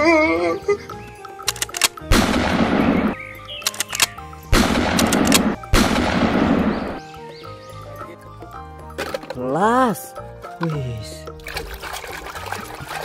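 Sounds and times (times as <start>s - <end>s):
background music: 0.0s - 13.0s
sharp clicks: 1.1s - 7.0s
shotgun blasts: 2.1s - 3.2s, 4.5s - 7.0s.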